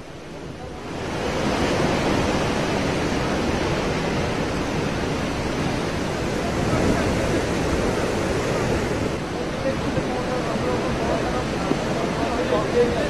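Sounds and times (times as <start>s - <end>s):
strong wind rushing through trees: 0.0s - 13.0s.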